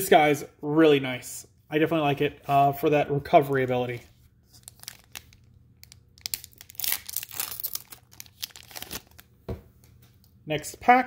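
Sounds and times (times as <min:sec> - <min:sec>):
foil wrapper crinkling and tearing: 0:04.5 - 0:09.3.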